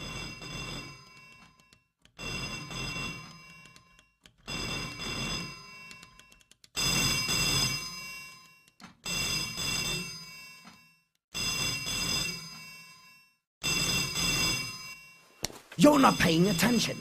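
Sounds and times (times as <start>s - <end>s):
telephone bell ringing: 0.0s - 17.0s.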